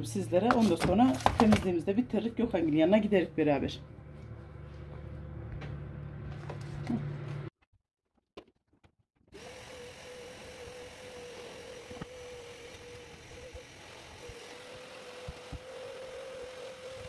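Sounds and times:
vacuum cleaner running: 9.4 - 17.0.

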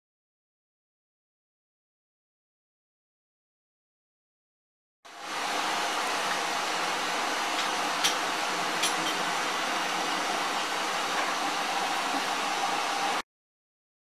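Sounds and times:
loud steam hiss: 5.1 - 13.2.

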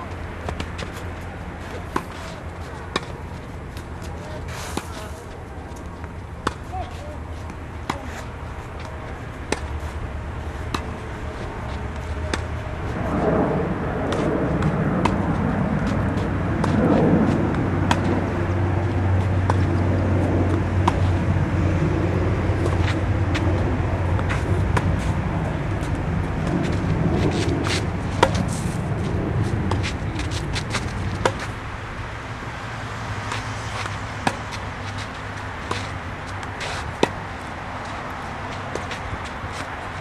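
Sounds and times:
tennis ball struck by rackets: 0.0 - 5.2, 5.8 - 12.9, 14.0 - 18.3, 19.1 - 31.6, 33.3 - 39.7
low rumble: 10.2 - 35.6.

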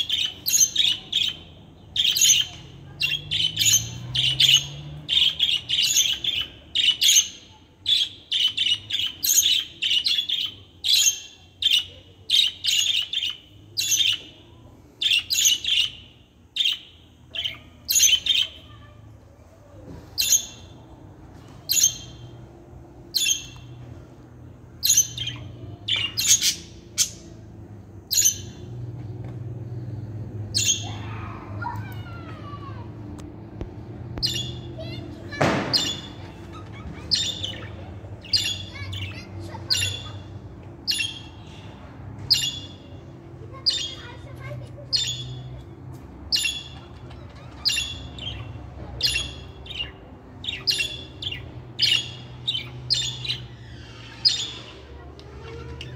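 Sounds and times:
budgerigars chirping and squawking: 0.0 - 14.3, 24.8 - 27.3, 34.2 - 45.6, 46.3 - 55.9.

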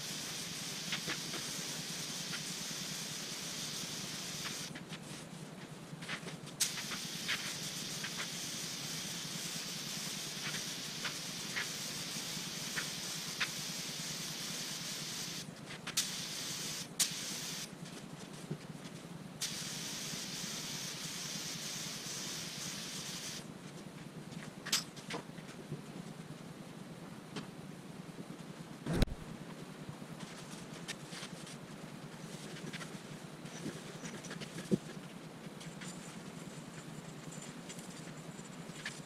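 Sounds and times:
paint spray gun hissing: 0.0 - 4.7, 6.6 - 17.7, 19.4 - 23.5
steady low hum: 0.0 - 39.0.

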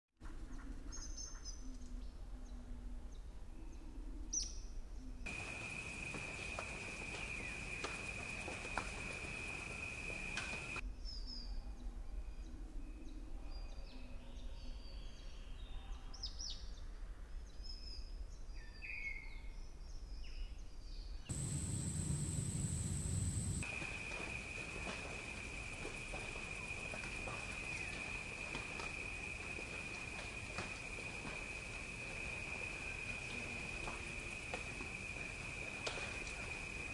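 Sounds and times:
small birds chirping: 5.3 - 10.8, 21.3 - 36.9
high-pitched insect drone: 21.3 - 36.9.

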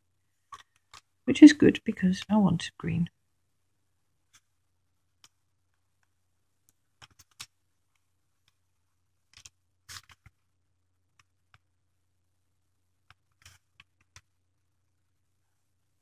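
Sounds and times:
pen clicks: 7.0 - 7.5.

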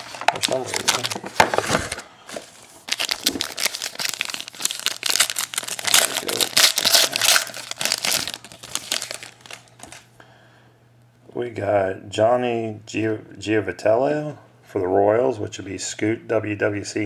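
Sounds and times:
wrapper tearing and crumpling: 0.0 - 2.0, 2.8 - 10.1.

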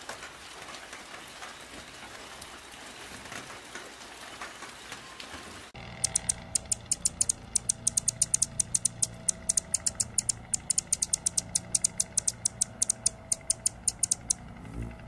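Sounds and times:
hummingbird chip notes: 5.8 - 15.0.

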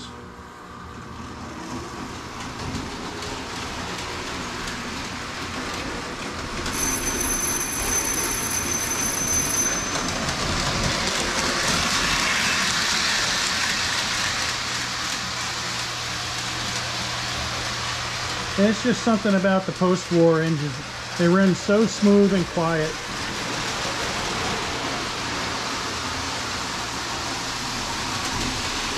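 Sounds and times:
toy train motor and wheels running: 1.7 - 28.9
thin high whine: 6.7 - 10.6.

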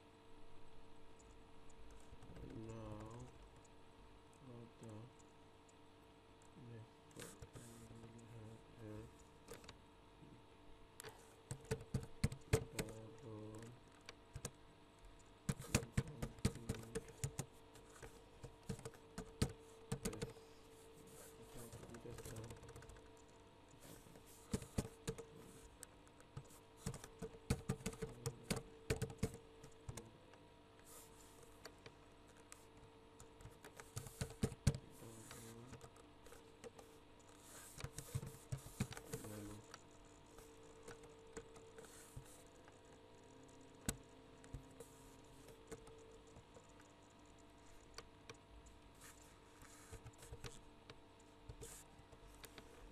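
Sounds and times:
faint steady hum: 0.0 - 52.9
typing on keyboard: 11.5 - 14.6, 15.5 - 20.4, 21.6 - 23.3, 24.5 - 25.4, 26.3 - 30.0, 33.2 - 36.9, 43.8 - 46.8.

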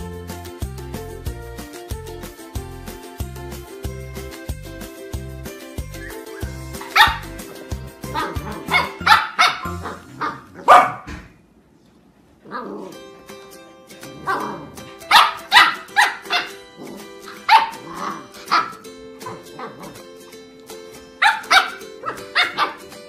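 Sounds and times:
background music: 0.0 - 10.5, 12.7 - 23.0
puppies barking and yapping: 5.8 - 11.2, 14.2 - 20.2, 21.2 - 23.0.

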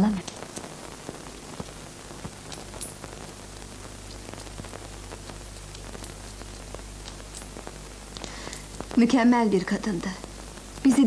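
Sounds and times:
faint crackling clicks: 0.0 - 11.0
film soundtrack hiss: 0.0 - 11.0
low mains hum: 0.0 - 11.0.

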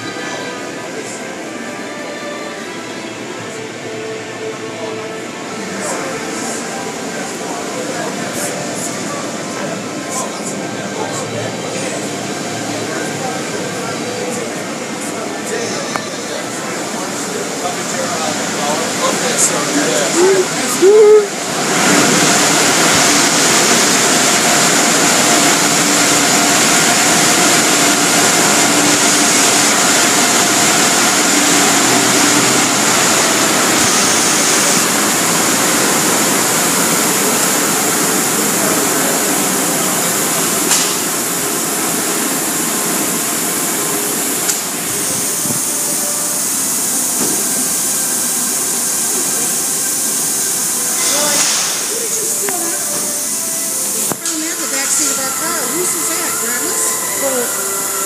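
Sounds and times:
car wash rushing hiss: 16.5 - 58.0.

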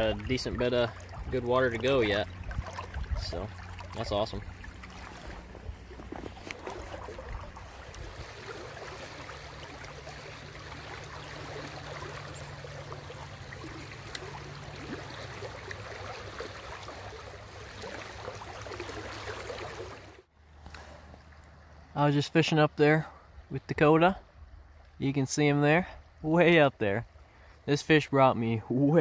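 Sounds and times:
river current rushing and gurgling: 0.0 - 25.5.

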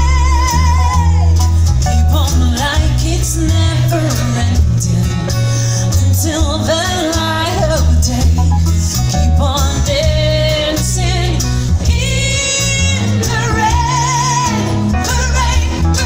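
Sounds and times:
acoustic guitar: 0.0 - 16.0
electric guitar: 0.0 - 16.0
heavy bass line: 0.0 - 16.0
woman singing: 0.0 - 16.0.

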